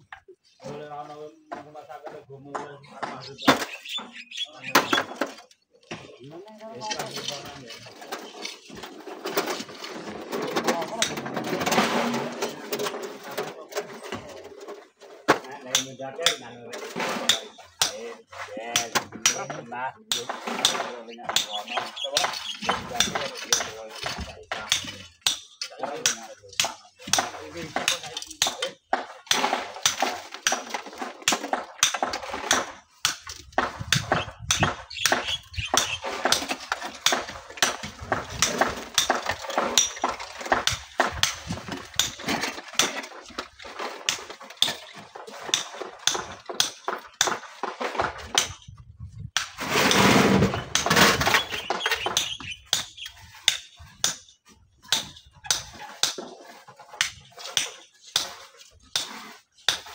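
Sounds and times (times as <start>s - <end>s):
rocks clinking and knocking: 2.4s - 59.9s
stones tumbling: 21.3s - 53.4s.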